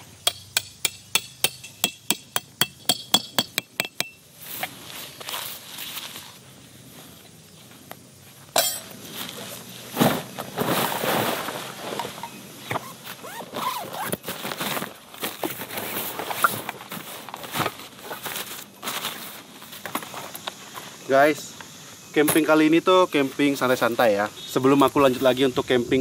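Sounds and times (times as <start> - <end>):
metal tent poles clinking: 0.2 - 4.2, 8.5 - 9.6
rustling of canvas fabric: 4.4 - 21.1.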